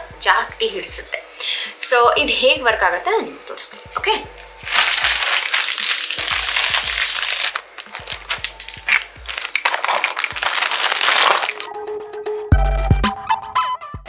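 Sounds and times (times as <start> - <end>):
background music: 0.0 - 14.0
plastic bag crinkling: 4.6 - 11.7.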